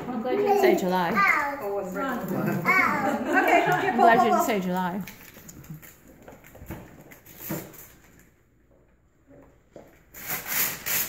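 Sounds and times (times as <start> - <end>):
paper crinkling: 4.5 - 8.4.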